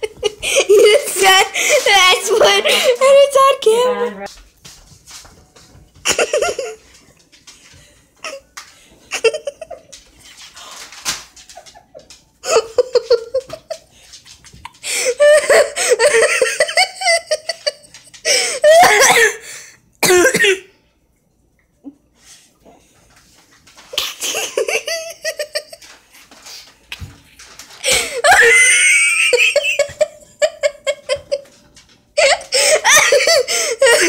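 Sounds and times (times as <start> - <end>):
person coughing: 18.7 - 19.4, 20.0 - 20.7
person laughing hard: 27.9 - 31.5, 32.2 - 34.0.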